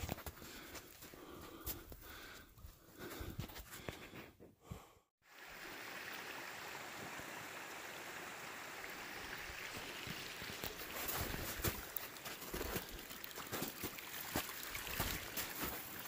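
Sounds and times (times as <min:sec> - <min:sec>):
stream water rushing: 0:05.3 - 0:16.0
footsteps: 0:10.0 - 0:16.0.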